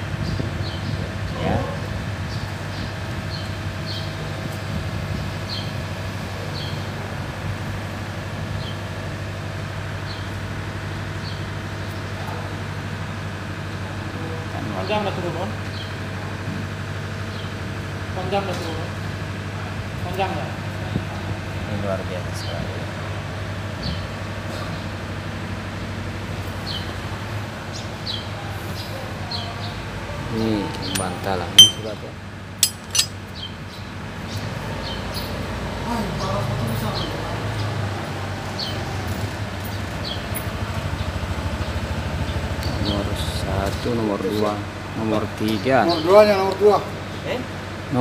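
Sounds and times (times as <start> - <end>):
low mechanical hum: 0.0 - 35.2
high falling chirps: 31.0 - 32.0
short high chirps: 31.6 - 31.9.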